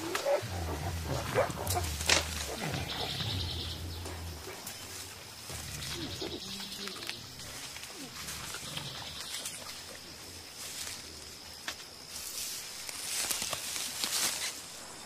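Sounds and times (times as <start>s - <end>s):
gorilla grunting: 0.0s - 9.5s
foliage rustling: 0.0s - 15.0s.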